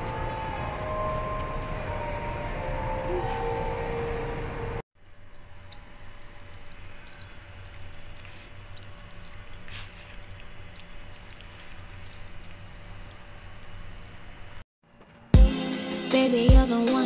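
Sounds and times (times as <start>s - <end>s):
fork stirring pasta: 7.0s - 12.7s.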